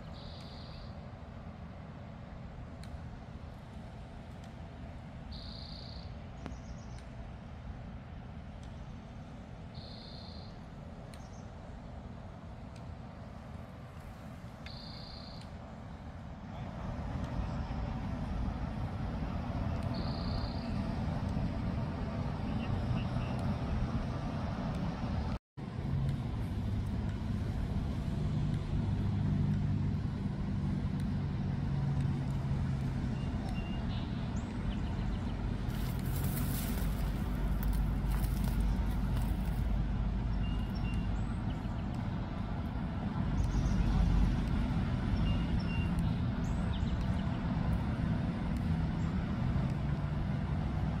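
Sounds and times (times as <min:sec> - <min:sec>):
engine hum: 0:00.0 - 0:51.0
road traffic rumble: 0:00.0 - 0:51.0.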